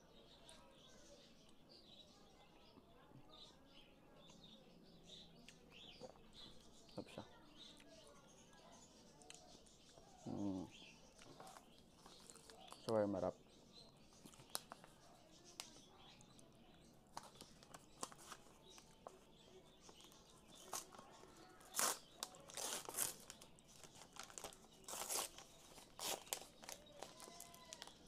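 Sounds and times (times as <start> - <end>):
paper wrapper crinkling and tearing: 11.2 - 12.9, 14.3 - 15.0, 17.1 - 19.2, 19.9 - 28.0.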